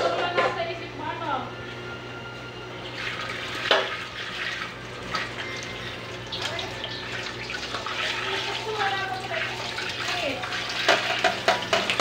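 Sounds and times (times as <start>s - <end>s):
food frying in a pan: 3.2s - 12.0s.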